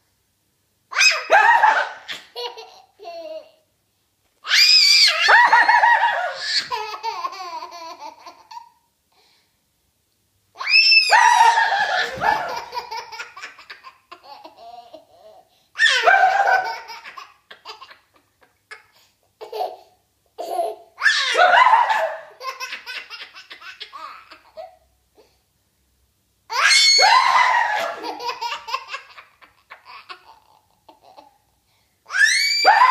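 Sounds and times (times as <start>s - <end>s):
toddler high-pitched scream: 0.9s - 2.2s, 4.4s - 5.5s, 10.6s - 12.6s, 21.0s - 22.1s, 26.5s - 28.0s, 32.1s - 32.9s
toddler laughing: 11.4s - 24.8s, 27.2s - 31.4s.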